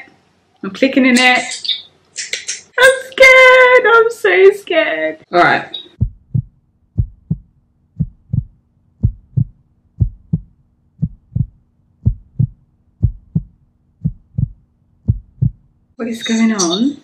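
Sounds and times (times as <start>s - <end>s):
faint low hum: 2.9s - 17.0s
heartbeat thumps: 6.0s - 15.8s.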